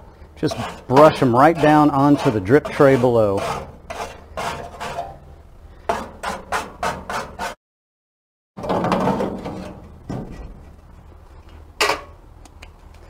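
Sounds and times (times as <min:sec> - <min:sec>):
metal baffle scraping and rattling: 0:00.4 - 0:07.6, 0:08.6 - 0:11.1
metal scraper scraping grill baffles: 0:00.4 - 0:07.6, 0:08.6 - 0:10.7.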